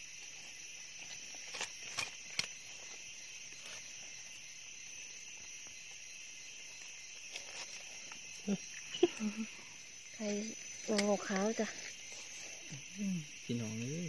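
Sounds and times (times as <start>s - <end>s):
insect chorus: 0.0s - 14.0s.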